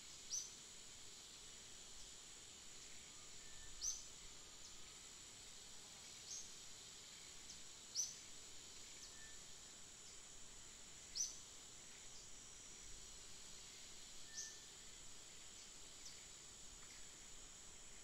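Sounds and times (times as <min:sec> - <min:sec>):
high-pitched insect drone: 0:07.1 - 0:18.0.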